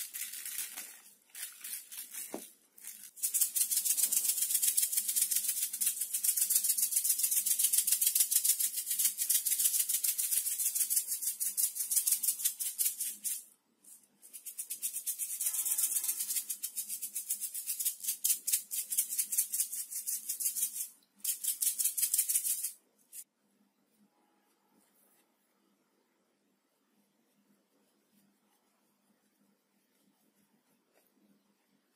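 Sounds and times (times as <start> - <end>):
plastic shaker rattling: 0.0 - 23.3.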